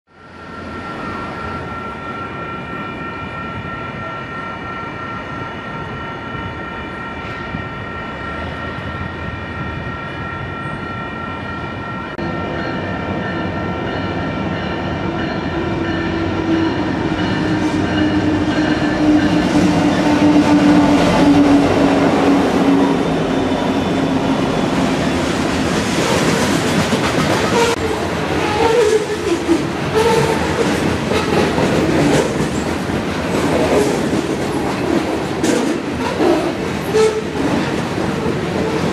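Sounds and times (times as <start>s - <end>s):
locomotive engine drone: 0.1s - 26.7s
steady high tone: 0.1s - 26.9s.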